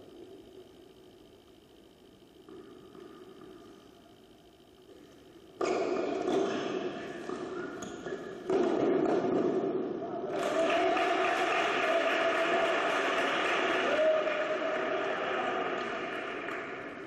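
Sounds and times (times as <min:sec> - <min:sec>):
indoor hall noise: 0:04.9 - 0:17.0.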